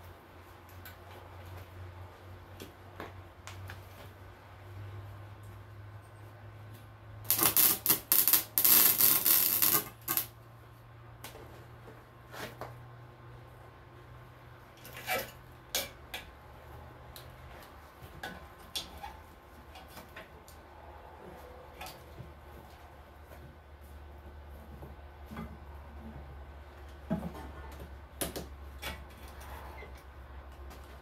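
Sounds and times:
welder arc crackling: 0:07.3 - 0:10.3.

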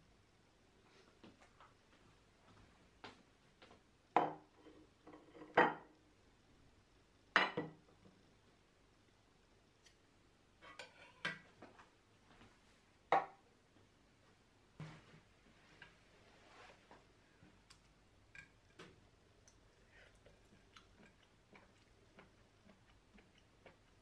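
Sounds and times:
tableware clunks and clinks: 0:05.1 - 0:05.9, 0:07.4 - 0:07.8.

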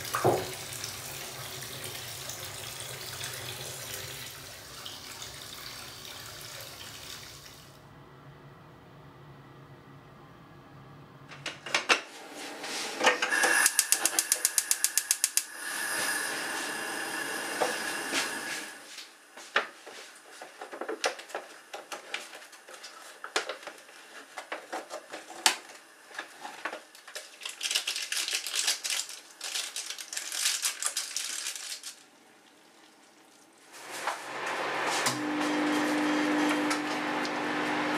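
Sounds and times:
fast run of clicks: 0:13.6 - 0:15.5
packaging crinkling and tearing: 0:26.4 - 0:32.1.

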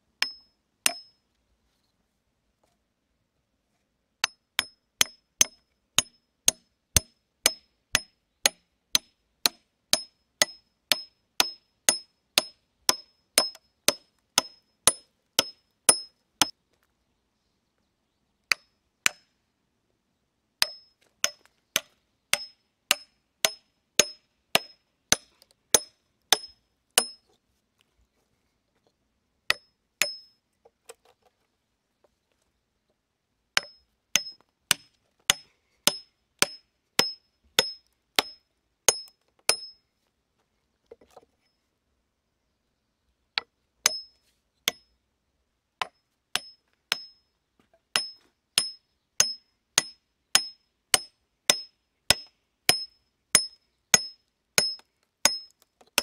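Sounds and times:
hatchet chopping wood: 0:00.2 - 0:01.1, 0:04.2 - 0:16.5, 0:18.5 - 0:19.3, 0:20.6 - 0:27.2, 0:29.5 - 0:30.3, 0:33.6 - 0:39.8, 0:43.4 - 0:44.1, 0:45.8 - 0:47.2, 0:47.9 - 0:56.0.

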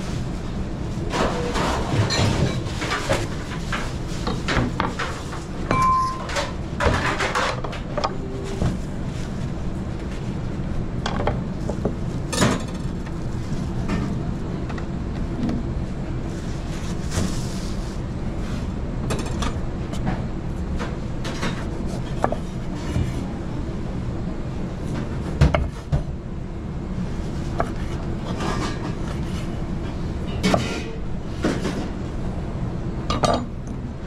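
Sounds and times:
pans and utensils clattering: 0:01.1 - 0:07.9.

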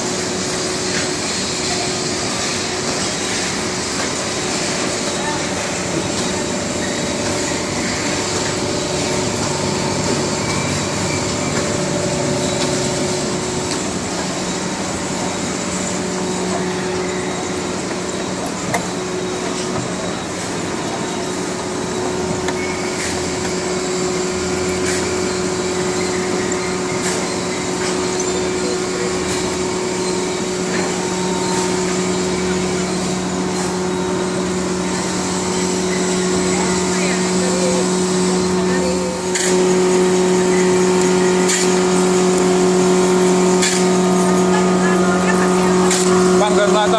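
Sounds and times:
rotary drum machinery drone: 0:00.0 - 0:46.9
small mechanical ticks: 0:39.2 - 0:46.2.

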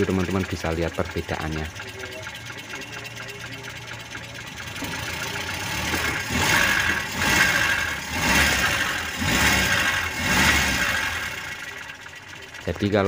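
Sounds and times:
car engine revving in blips: 0:04.8 - 0:11.7.

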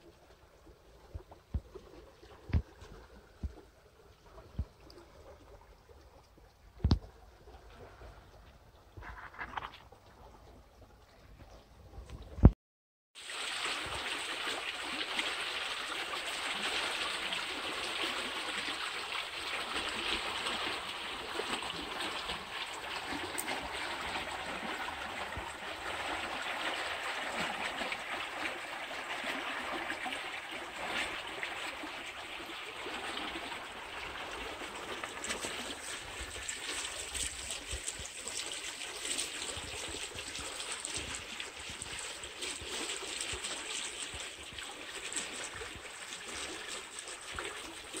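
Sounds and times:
water rushing over stones: 0:13.2 - 0:48.0.

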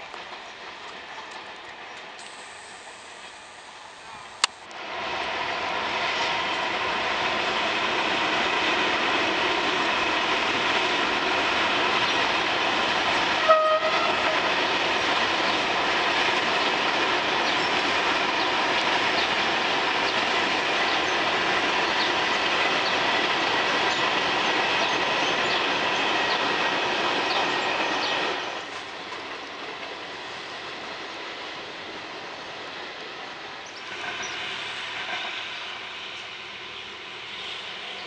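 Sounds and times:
train wheels on rail: 0:00.0 - 0:38.0
train horn blast: 0:13.4 - 0:14.5.

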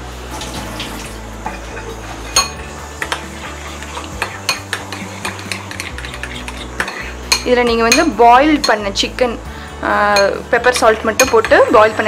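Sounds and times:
metal spoon stirring in ceramic bowl: 0:01.5 - 0:08.9, 0:10.2 - 0:11.7.

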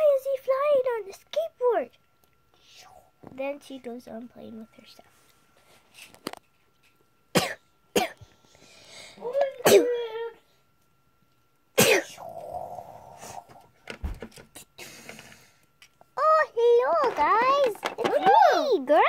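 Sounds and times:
person clearing throat: 0:07.4 - 0:08.2, 0:09.6 - 0:10.0, 0:11.8 - 0:12.4
person coughing: 0:07.4 - 0:08.2, 0:09.6 - 0:10.0, 0:11.8 - 0:12.3.

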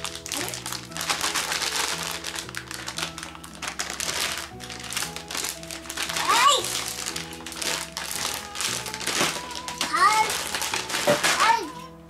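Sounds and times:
plastic packaging crinkling: 0:00.0 - 0:12.0.

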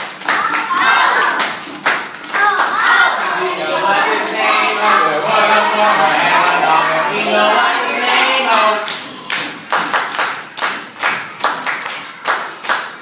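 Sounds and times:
rhythmic clapping: 0:00.0 - 0:05.1, 0:08.8 - 0:13.0
children chanting in unison: 0:00.3 - 0:01.6, 0:02.3 - 0:09.7.

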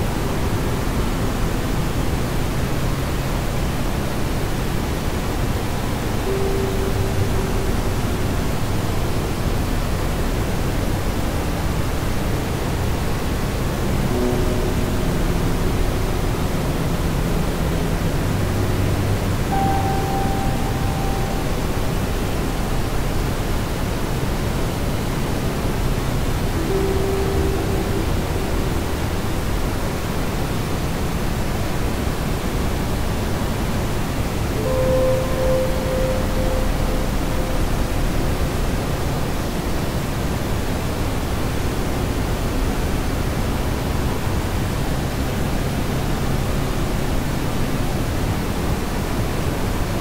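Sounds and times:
faint low tone: 0:00.0 - 0:10.9, 0:11.8 - 0:31.8, 0:34.4 - 0:40.2
loud static hiss: 0:00.0 - 0:50.0
steady low rushing noise: 0:12.8 - 0:40.9.

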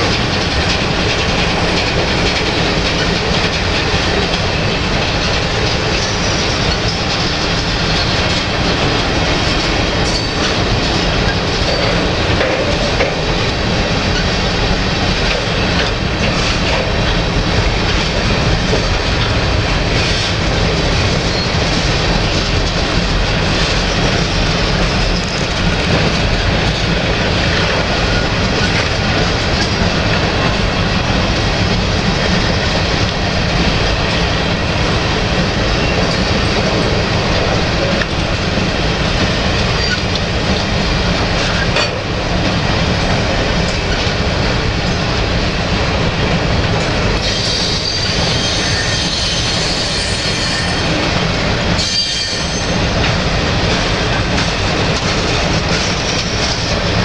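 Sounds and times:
train cars clanking: 0:00.0 - 0:57.0
train wheels running on rails: 0:00.0 - 0:57.0
high wheel squeal: 0:47.2 - 0:51.0, 0:51.8 - 0:52.8.

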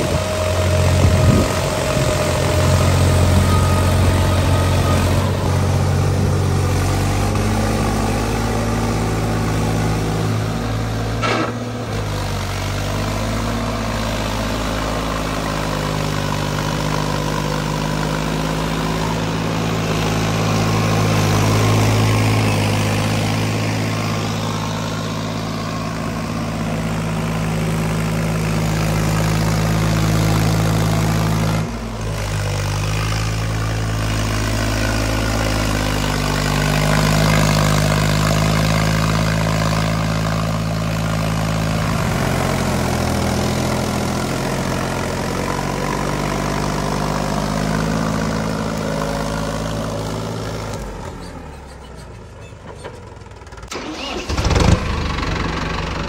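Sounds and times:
tractor diesel engine running: 0:00.0 - 0:56.0.

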